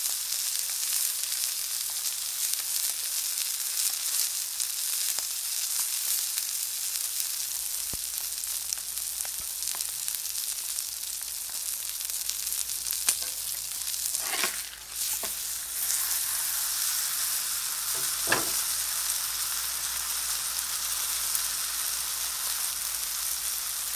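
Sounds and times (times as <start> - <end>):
steak sizzling on a griddle: 0.0 - 23.9
spatula scraping griddle: 13.1 - 16.8, 17.8 - 18.8.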